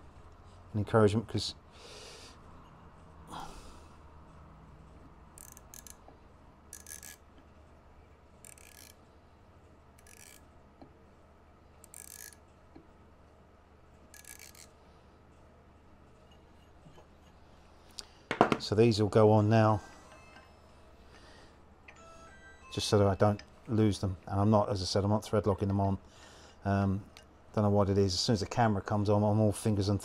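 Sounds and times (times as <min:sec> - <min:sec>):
hubcaps screwed on by hand: 0:05.3 - 0:07.2.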